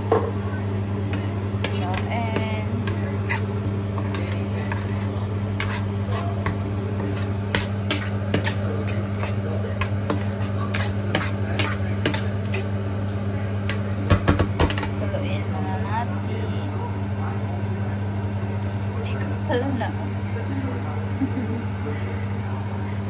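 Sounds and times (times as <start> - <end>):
steady low hum: 0.0 - 23.0
metal spoon scraping a pan: 1.1 - 12.8.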